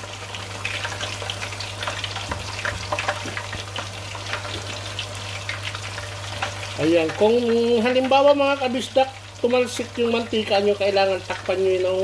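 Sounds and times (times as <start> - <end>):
chicken deep-frying in oil: 0.0 - 12.0.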